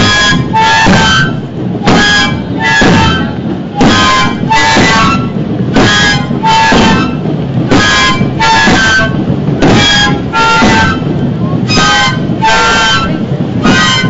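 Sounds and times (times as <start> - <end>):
flutes blown in reedy blasts: 0.0 - 14.0
low background din: 0.0 - 14.0.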